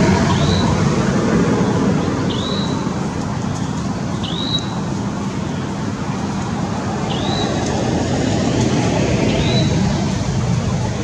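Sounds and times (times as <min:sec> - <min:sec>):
steady rushing noise: 0:00.0 - 0:11.0.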